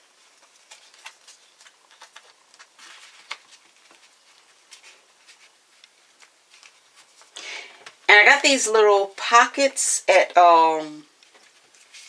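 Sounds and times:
paper rustling: 0:00.0 - 0:08.0, 0:11.1 - 0:12.0.

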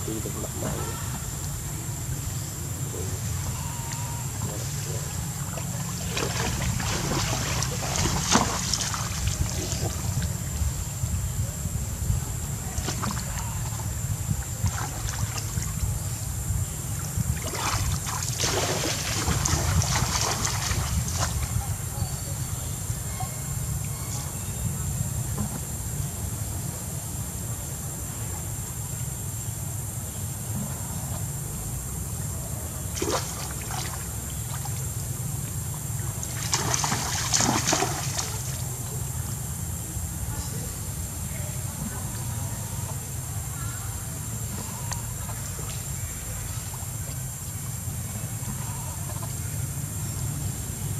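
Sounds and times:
wind rumble on microphone: 0:00.0 - 0:28.7
water splashing and sloshing: 0:03.0 - 0:10.7, 0:12.6 - 0:21.8, 0:32.8 - 0:39.1.

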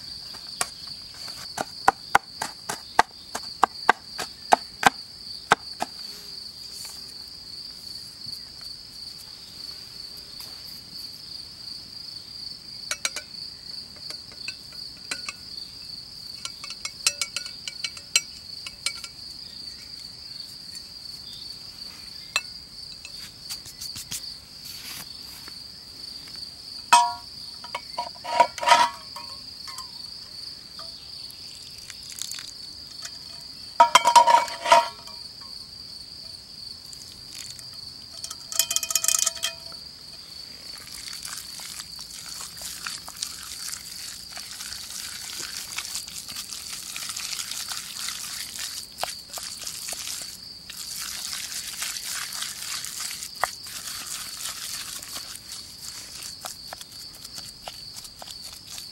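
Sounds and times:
crickets chirring: 0:00.0 - 0:58.9
clinks and knocks: 0:12.9 - 0:13.3, 0:14.0 - 0:15.4, 0:16.4 - 0:19.2, 0:26.9 - 0:30.0, 0:33.0 - 0:35.6, 0:38.1 - 0:39.8.

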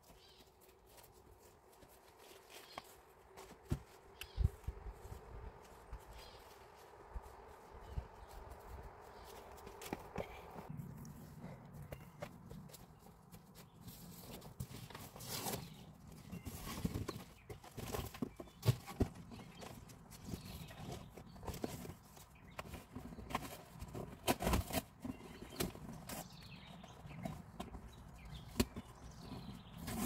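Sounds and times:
cardboard boxes knocking and rustling: 0:13.4 - 0:26.4
boxes thumping on grass: 0:16.5 - 0:22.0, 0:22.6 - 0:26.3.

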